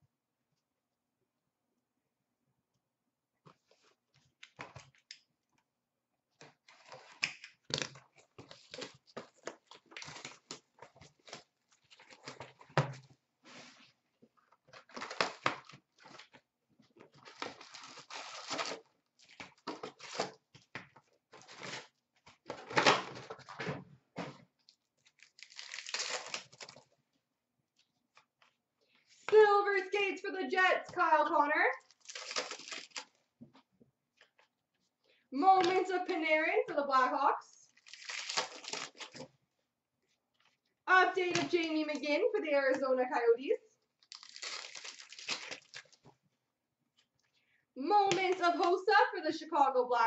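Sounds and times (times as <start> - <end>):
packaging crinkling and tearing: 6.7 - 12.7, 14.6 - 16.4, 17.1 - 20.4, 25.0 - 27.0, 31.8 - 33.2, 37.7 - 39.3, 44.0 - 46.1.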